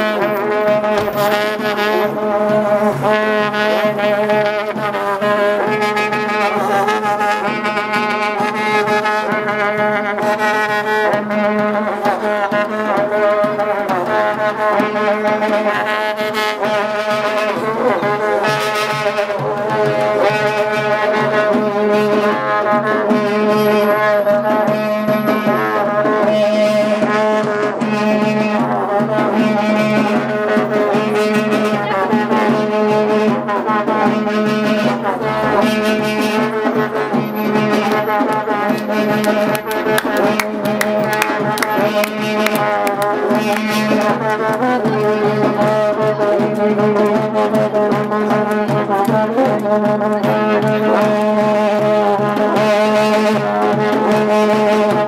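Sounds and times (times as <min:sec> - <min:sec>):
brass horns droning: 0:00.0 - 0:08.0
wavering horn melody: 0:00.0 - 0:21.3, 0:21.9 - 0:44.8
drum beats: 0:00.0 - 0:55.0.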